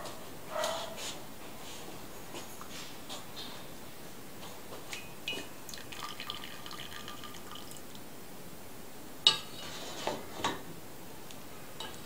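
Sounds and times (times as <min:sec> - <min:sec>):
water dripping into saucepan: 0:05.3 - 0:07.9.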